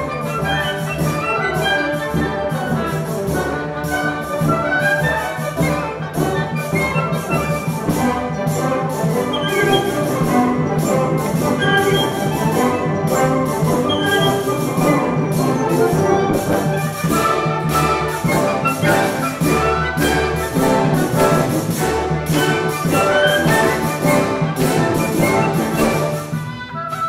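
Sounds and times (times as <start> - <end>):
brass and woodwinds melody: 0.0 - 27.0
steady drum beat: 2.2 - 26.5.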